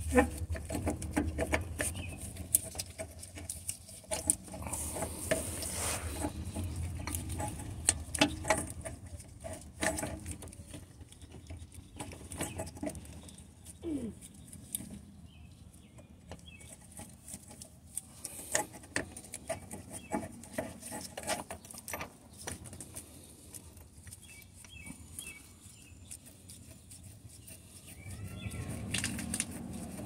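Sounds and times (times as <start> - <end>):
metal parts clicking and knocking: 0.0 - 15.0, 28.3 - 30.0.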